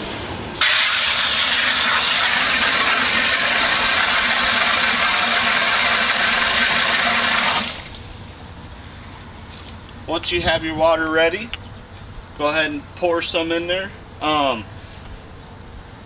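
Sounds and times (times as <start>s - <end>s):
hose spraying water into bucket: 0.6s - 8.0s.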